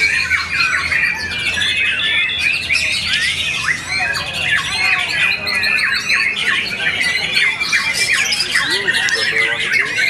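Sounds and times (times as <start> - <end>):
other birds singing: 0.0 - 10.0.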